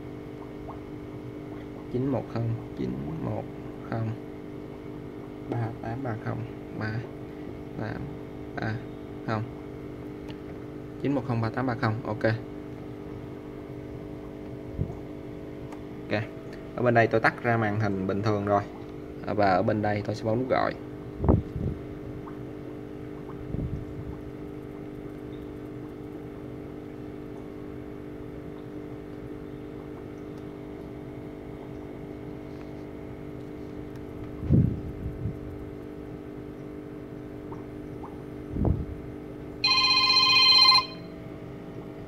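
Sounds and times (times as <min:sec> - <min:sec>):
steady low hum: 0:00.0 - 0:42.0
phone ringtone chime: 0:39.6 - 0:41.1.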